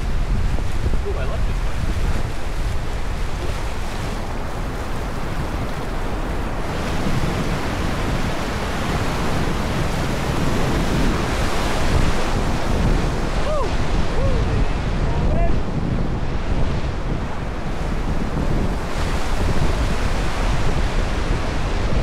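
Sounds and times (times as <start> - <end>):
whitewater rushing: 0.0 - 15.6
wind buffeting microphone: 0.0 - 22.0.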